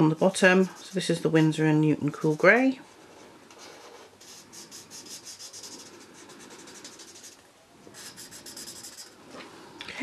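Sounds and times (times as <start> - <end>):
marker nib rubbing on paper: 3.6 - 7.4, 8.0 - 9.2.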